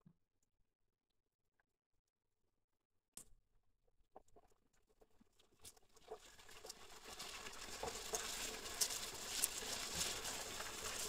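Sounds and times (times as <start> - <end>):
onions sizzling in hot oil: 6.9 - 11.0.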